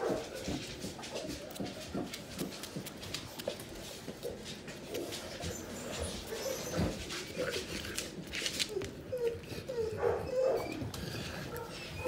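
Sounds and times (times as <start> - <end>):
puppy claws clicking on floor: 0.0 - 9.6
puppy whimpering: 5.4 - 7.8, 8.4 - 12.0.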